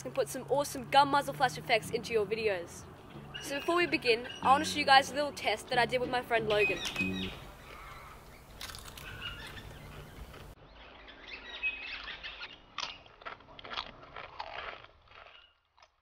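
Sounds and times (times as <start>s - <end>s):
person chewing crunchy chips: 8.6s - 9.5s, 13.0s - 16.0s.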